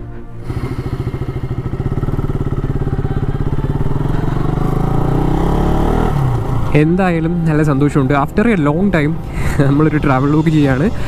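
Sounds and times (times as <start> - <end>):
motorcycle engine starting and revving: 0.2 - 11.0.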